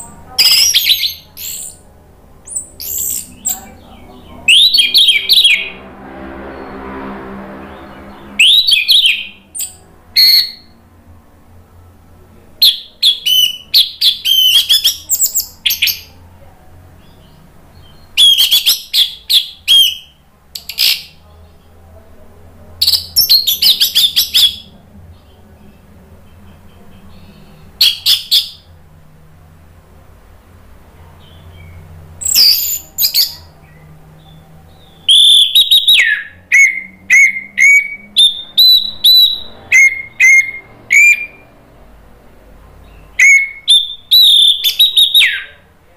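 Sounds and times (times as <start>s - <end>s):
thrush singing: 0.0s - 45.9s.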